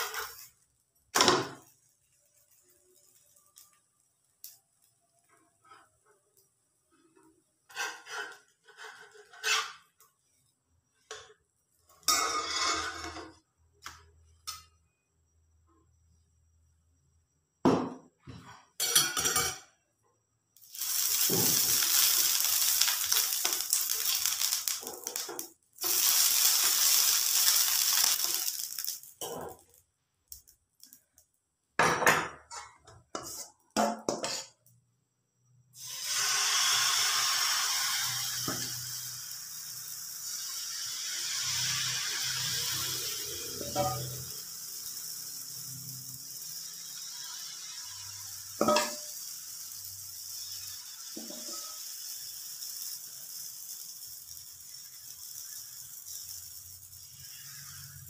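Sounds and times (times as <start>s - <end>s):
hot pan hissing: 0.0s - 5.8s, 20.6s - 29.8s, 35.8s - 58.0s.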